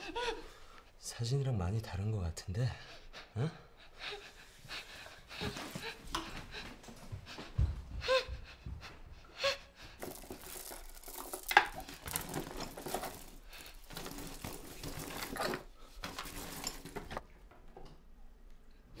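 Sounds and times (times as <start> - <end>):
rummaging in a drawer: 10.0 - 17.2.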